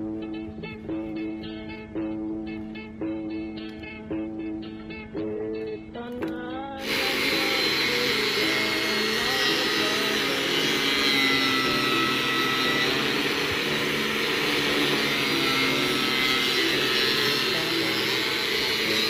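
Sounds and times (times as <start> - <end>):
guitar music: 0.0 - 19.0
angle grinder cutting wood: 6.8 - 19.0.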